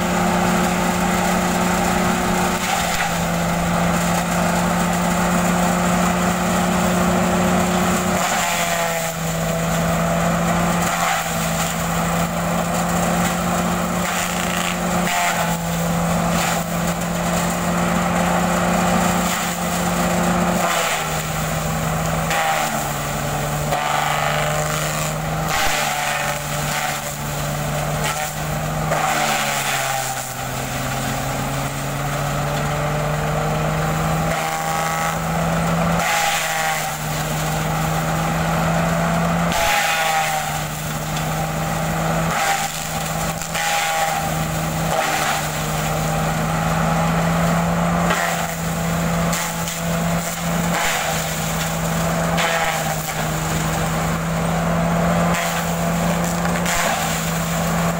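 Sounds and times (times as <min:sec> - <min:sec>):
shredder machine running: 0:00.0 - 0:57.9
fronds crackling as chopped: 0:00.6 - 0:57.9.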